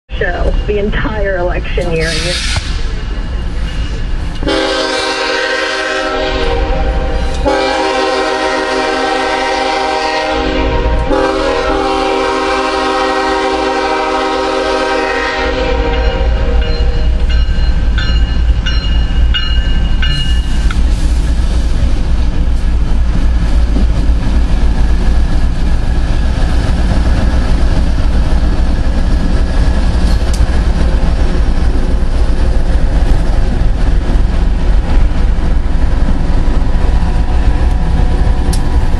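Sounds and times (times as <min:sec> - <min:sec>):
train engines and wheels rumbling: 0:00.1 - 0:38.9
locomotive air horn blasts: 0:02.0 - 0:02.6, 0:04.4 - 0:17.0.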